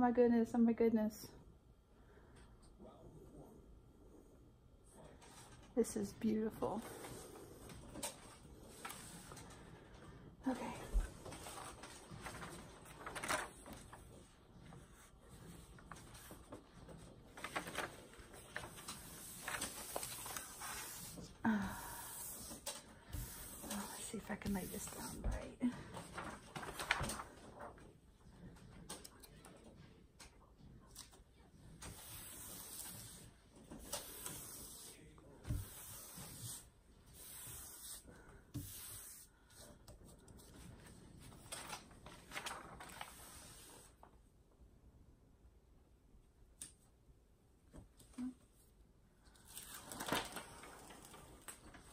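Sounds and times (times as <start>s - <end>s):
paper sheet rustling: 6.8s - 9.9s, 10.5s - 27.9s, 30.9s - 44.1s, 49.4s - 51.9s.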